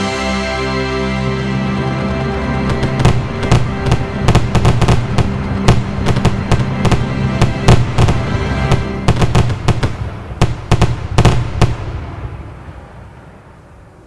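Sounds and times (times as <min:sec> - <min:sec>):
background music: 0:00.0 - 0:12.7
fireworks banging and crackling: 0:02.7 - 0:12.4.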